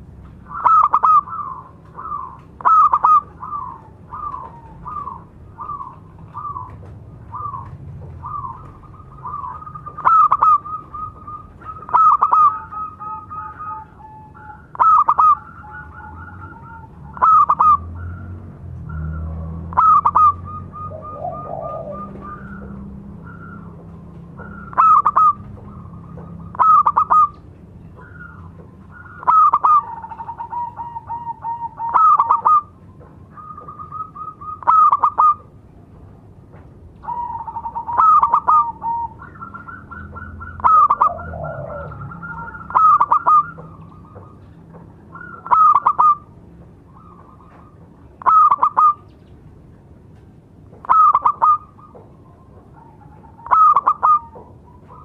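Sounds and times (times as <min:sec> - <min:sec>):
dove staccato cooing: 0:00.0 - 0:35.6, 0:36.4 - 0:49.1, 0:50.6 - 0:55.0
soft drawn-out dove coos: 0:18.9 - 0:23.7, 0:37.0 - 0:44.5, 0:50.8 - 0:55.0.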